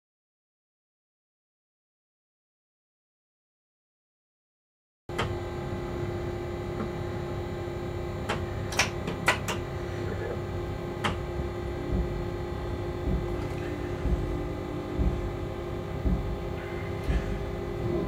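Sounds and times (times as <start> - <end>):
steady electrical hum: 5.1 - 18.0
low rumble: 10.5 - 18.0.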